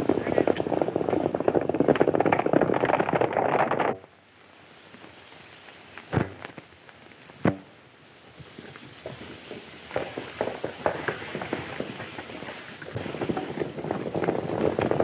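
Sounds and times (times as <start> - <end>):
horses galloping: 0.0 - 4.0, 8.6 - 15.0.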